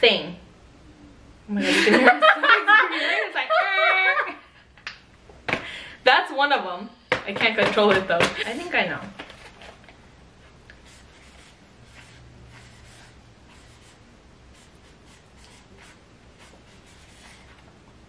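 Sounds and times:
marker writing on paper: 10.8s - 17.6s.

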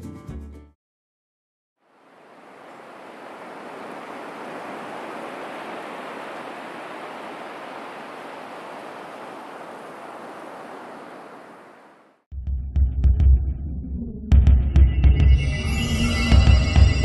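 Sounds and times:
surf breaking on a beach: 1.9s - 12.2s.

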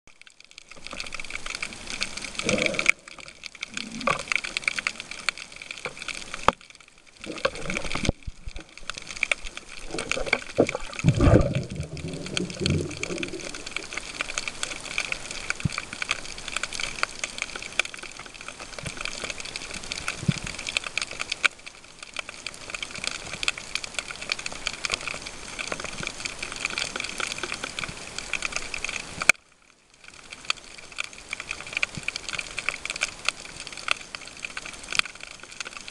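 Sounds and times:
underwater crackle of fine clicks: 0.1s - 35.9s
low underwater gurgle: 0.6s - 17.0s.

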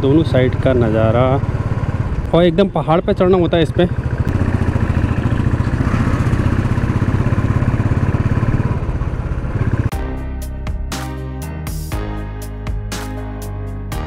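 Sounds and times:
motorcycle engine rumbling: 0.0s - 10.0s.

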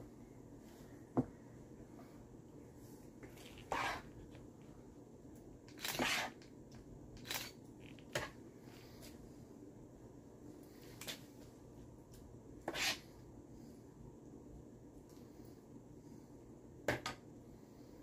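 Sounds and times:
spoon scraping a bowl: 3.4s - 4.2s, 5.7s - 6.4s, 12.7s - 13.1s.

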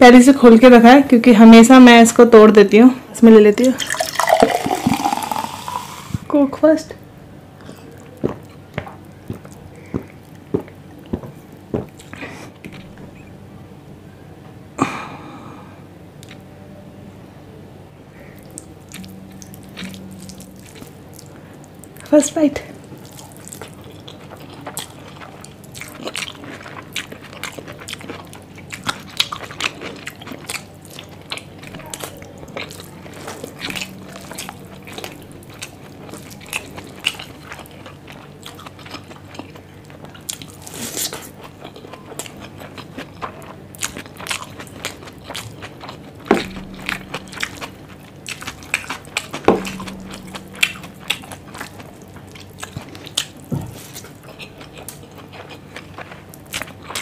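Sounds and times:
person chewing and smacking: 7.7s - 13.3s, 18.4s - 22.1s, 22.8s - 57.0s.

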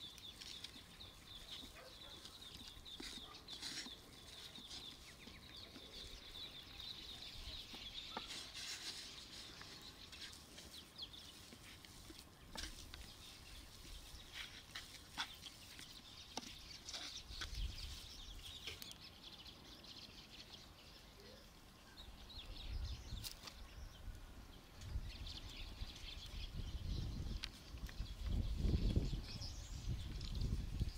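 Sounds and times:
hands mixing minced meat: 0.0s - 18.1s
birds calling: 0.0s - 30.9s
wind rumble on microphone: 24.8s - 30.9s.

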